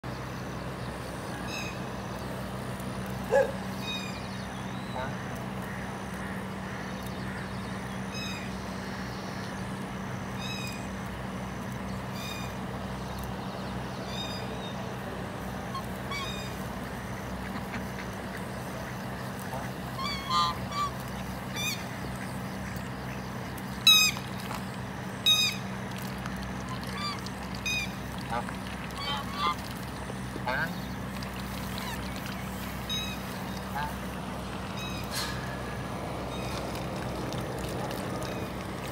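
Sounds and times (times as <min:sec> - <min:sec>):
steady low hum: 0:00.0 - 0:38.9
ducks quacking: 0:15.6 - 0:24.3, 0:26.4 - 0:37.0.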